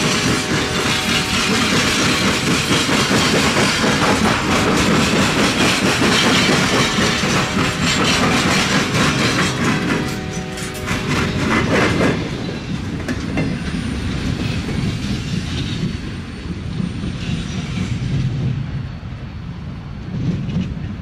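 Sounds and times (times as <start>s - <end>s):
sharp wheel clacks: 0.0s - 12.2s
freight train rumbling past: 0.0s - 21.0s.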